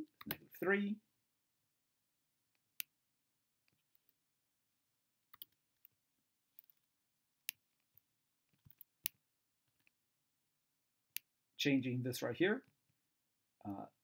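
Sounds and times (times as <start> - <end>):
mouse and keyboard clicks: 5.3 - 5.9.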